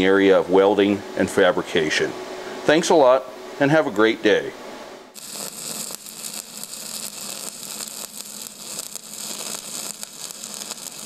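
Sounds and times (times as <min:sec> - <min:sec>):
hiss-like static: 0:05.2 - 0:11.0
light crackle: 0:05.2 - 0:11.0.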